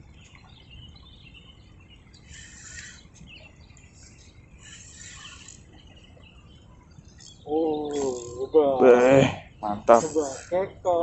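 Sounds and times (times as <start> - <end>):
faint bird chirps: 0.0 - 11.0
short bursts of hiss: 2.3 - 3.0, 4.6 - 5.6, 9.9 - 10.6.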